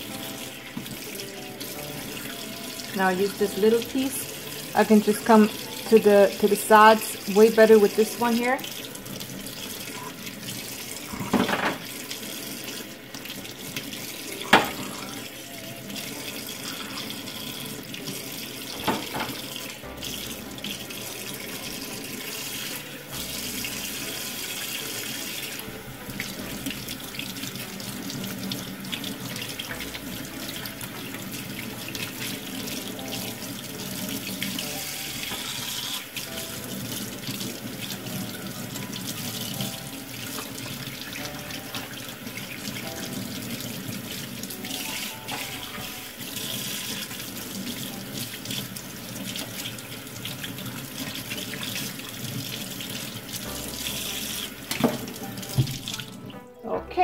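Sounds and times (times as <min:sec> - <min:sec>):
tap running into metal sink: 0:11.1 - 0:12.0, 0:18.7 - 0:19.5, 0:54.4 - 0:56.1.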